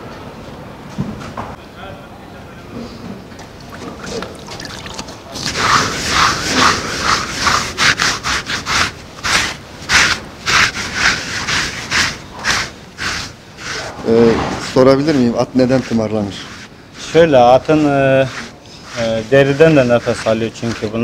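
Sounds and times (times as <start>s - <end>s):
brush scraping horse's coat: 5.3s - 21.0s.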